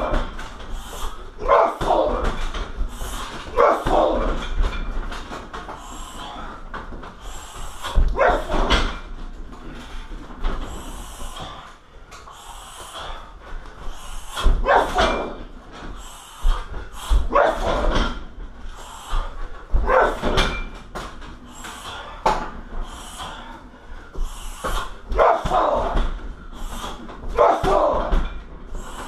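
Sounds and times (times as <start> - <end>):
kicks thudding on heavy bag: 25.1 - 26.6, 27.2 - 28.4.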